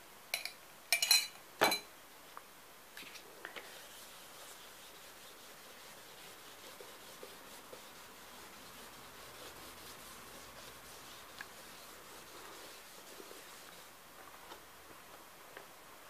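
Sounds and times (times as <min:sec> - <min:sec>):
applicator rubbing damp paper: 0:03.5 - 0:14.0.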